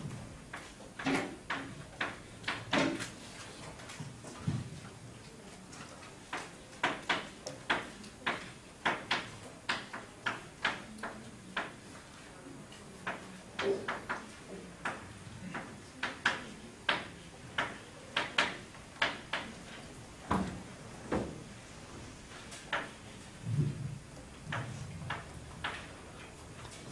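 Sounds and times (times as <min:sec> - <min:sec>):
chalk tapping on blackboard: 0:13.0 - 0:19.6.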